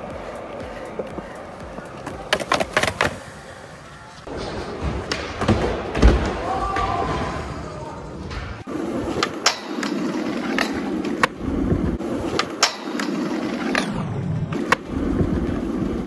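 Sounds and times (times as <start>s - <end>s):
skateboard popping and landing: 2.0s - 3.2s
skateboard wheels rolling on asphalt: 8.6s - 16.0s.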